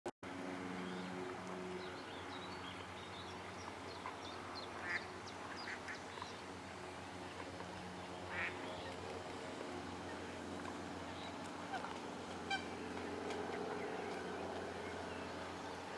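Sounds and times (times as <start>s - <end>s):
low steady hum: 0.3s - 15.9s
ducks quacking: 4.7s - 6.0s, 8.3s - 8.7s, 11.6s - 13.1s.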